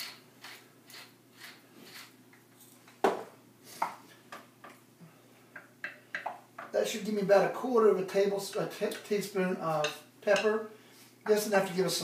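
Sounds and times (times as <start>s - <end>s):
pepper grinder grinding: 0.0s - 2.1s.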